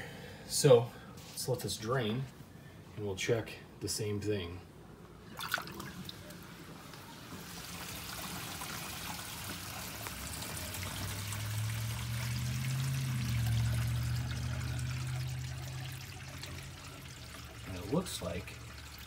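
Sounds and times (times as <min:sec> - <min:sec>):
water rushing down drain: 0:05.3 - 0:19.0.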